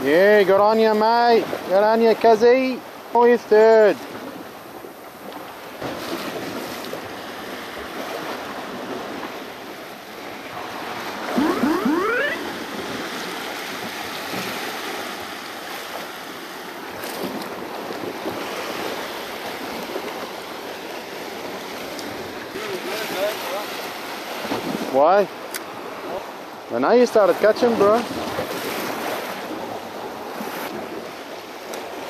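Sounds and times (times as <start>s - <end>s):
brief rising pitch sound: 11.4s - 12.7s
waves washing over rocks: 12.4s - 32.0s.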